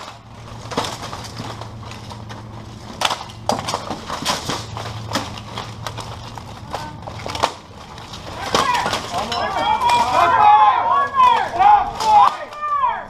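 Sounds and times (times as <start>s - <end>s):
armour and weapons clashing: 0.0s - 13.0s.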